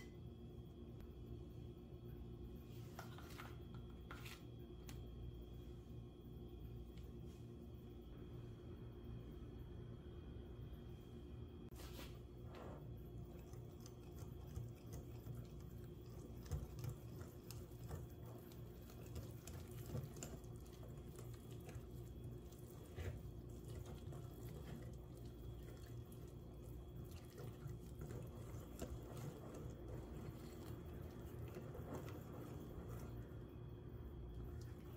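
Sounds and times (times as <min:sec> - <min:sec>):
low steady hum: 0:00.0 - 0:34.9
whisk stirring batter: 0:12.6 - 0:34.9.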